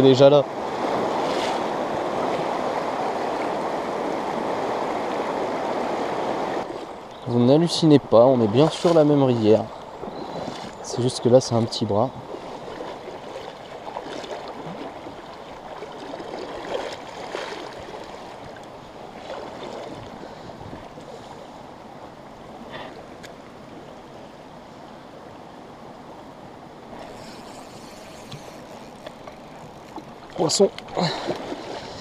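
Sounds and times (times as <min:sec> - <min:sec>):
stream water gurgling over stones: 0:08.0 - 0:21.1, 0:26.8 - 0:32.0.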